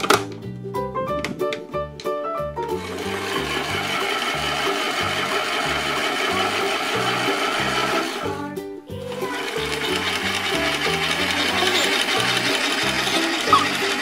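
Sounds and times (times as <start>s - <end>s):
toy washing machine whirring: 2.8s - 8.3s, 9.0s - 14.0s.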